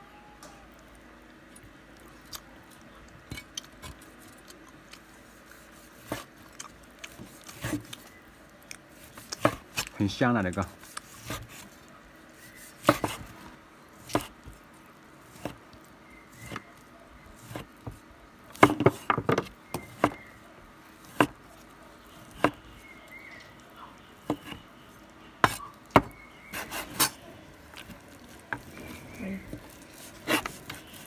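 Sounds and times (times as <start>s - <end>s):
cleaver chopping on wooden board: 12.8s - 13.2s, 14.0s - 14.3s, 17.4s - 20.3s, 21.1s - 21.4s, 22.4s - 22.6s, 25.4s - 27.2s.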